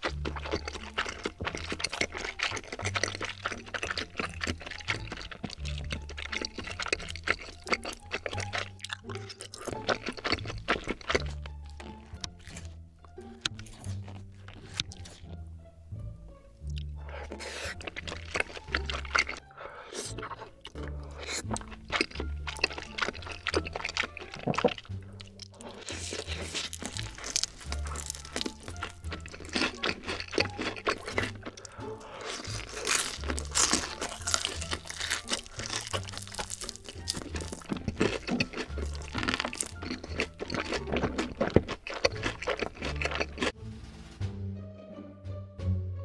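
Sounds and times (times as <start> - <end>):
bite into fried chicken: 0.0 - 11.4, 17.2 - 43.6
slurping and chewing: 0.0 - 15.4, 16.6 - 43.6
background music with bass: 0.0 - 46.0.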